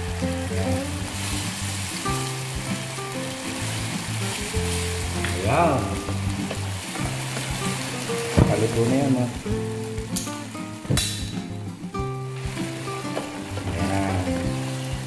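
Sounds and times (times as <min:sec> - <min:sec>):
gravy boiling and sizzling: 0:00.0 - 0:15.0
wooden spatula stirring: 0:03.2 - 0:08.9.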